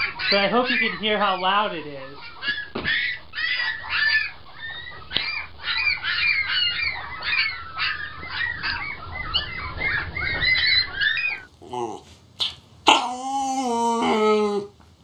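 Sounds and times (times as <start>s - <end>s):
puppies squeaking and whining: 0.0s - 11.5s.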